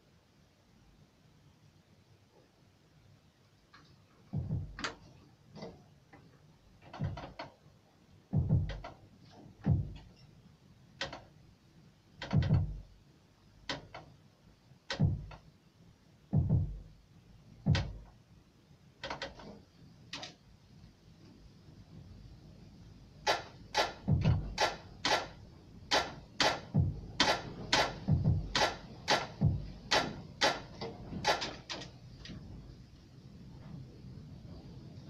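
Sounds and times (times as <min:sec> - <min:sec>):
sparse drum beat: 0:04.3 - 0:04.9, 0:08.3 - 0:08.9, 0:09.6 - 0:10.0, 0:12.3 - 0:12.9, 0:15.0 - 0:15.4, 0:16.3 - 0:17.0, 0:17.6 - 0:18.1, 0:23.3 - 0:25.3, 0:25.9 - 0:31.4.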